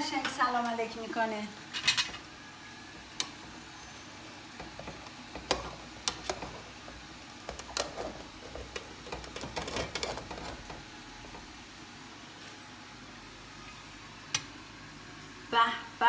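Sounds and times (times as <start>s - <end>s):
metal spoon scraping a pot: 7.8s - 10.8s.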